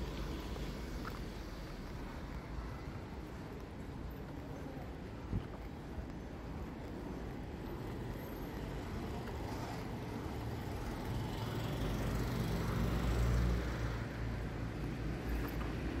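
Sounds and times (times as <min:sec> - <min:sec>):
road noise hum: 0:00.0 - 0:16.0.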